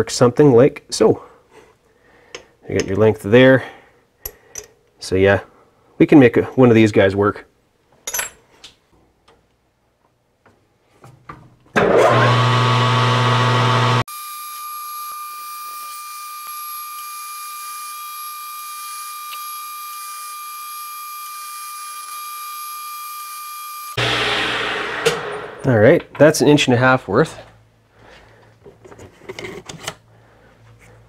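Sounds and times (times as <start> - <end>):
metal lathe humming: 11.8 - 14.3, 24.0 - 25.7.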